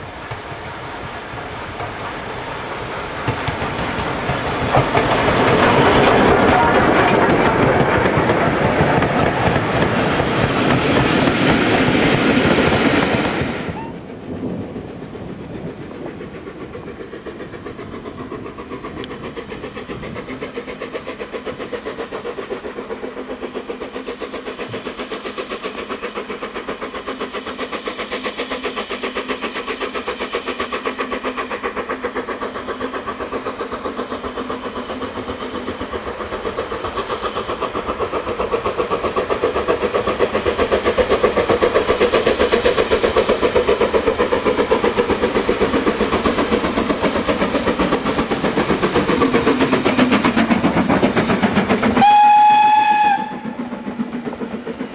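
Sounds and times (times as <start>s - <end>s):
steam locomotive exhaust beats: 0.0s - 54.9s
train wheels clicking over rail joints: 0.0s - 54.9s
steam whistle blast: 52.0s - 53.5s.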